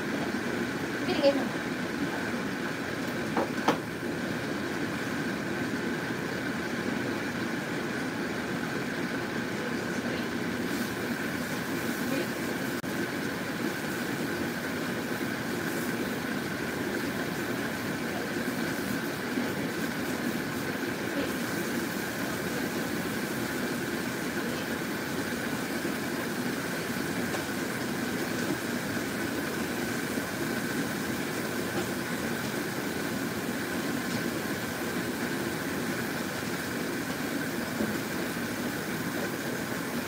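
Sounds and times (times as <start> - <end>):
broth boiling in a pot: 0.0 - 40.0
steady hum: 0.0 - 40.0.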